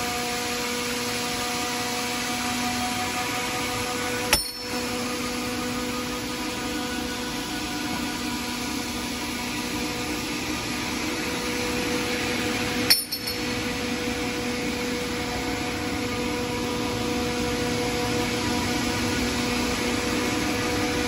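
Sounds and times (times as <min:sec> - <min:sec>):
deburring machine humming: 0:00.0 - 0:21.0
sharp metal clink: 0:04.3 - 0:04.8, 0:12.9 - 0:13.4.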